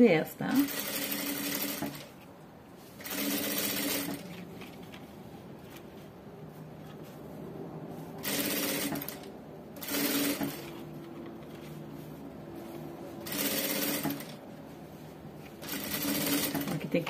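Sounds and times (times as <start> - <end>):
sewing machine stitching: 0.6 - 2.1, 3.0 - 4.4, 8.2 - 10.8, 13.2 - 14.4, 15.6 - 17.0.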